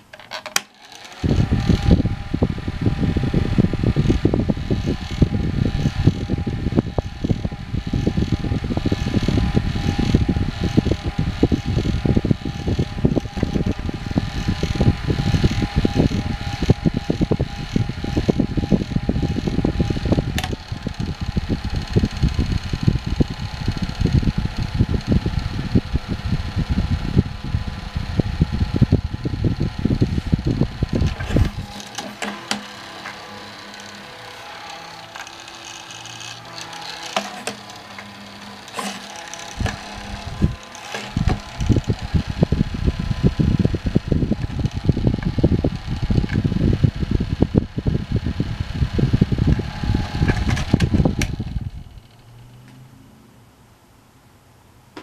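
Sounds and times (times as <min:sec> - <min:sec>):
desk fan whirring: 0:00.0 - 0:55.0
fan switch click: 0:19.4 - 0:21.2, 0:49.5 - 0:51.5.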